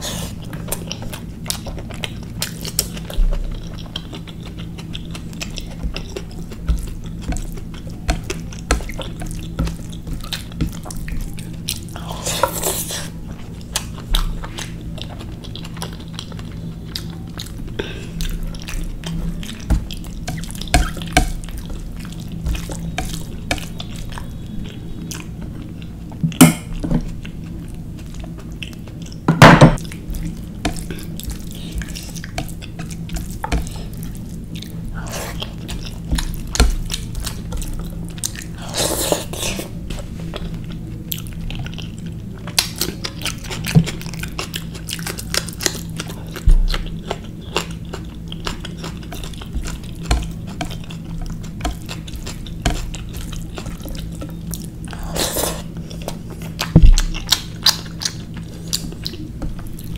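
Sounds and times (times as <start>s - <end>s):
chewing and mouth sounds: 0.0s - 59.9s
steady low hum: 0.0s - 59.9s
knocks on dishes: 29.3s - 29.8s.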